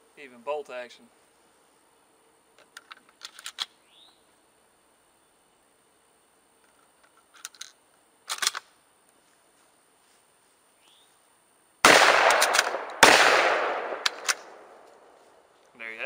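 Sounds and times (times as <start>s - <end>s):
shotgun bolt clicks: 8.3s - 8.7s, 11.9s - 15.0s
loud shotgun shots: 11.8s - 14.8s.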